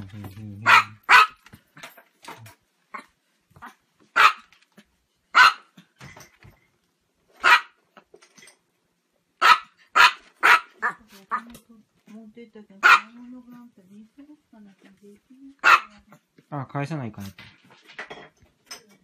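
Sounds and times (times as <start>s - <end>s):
dog barking: 0.6s - 1.4s, 3.6s - 4.5s, 5.3s - 5.8s, 7.4s - 7.8s, 9.4s - 11.4s, 12.8s - 13.2s, 15.6s - 16.1s.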